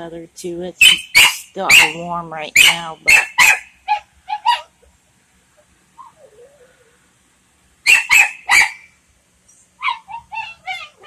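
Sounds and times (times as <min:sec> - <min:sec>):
dog barking: 0:00.8 - 0:02.0, 0:02.6 - 0:04.7, 0:07.9 - 0:08.9, 0:09.8 - 0:11.0.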